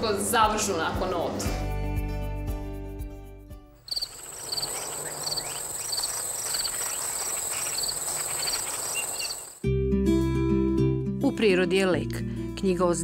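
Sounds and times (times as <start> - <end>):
crickets chirping: 3.8 - 9.6
high-pitched insect trill: 3.9 - 9.6.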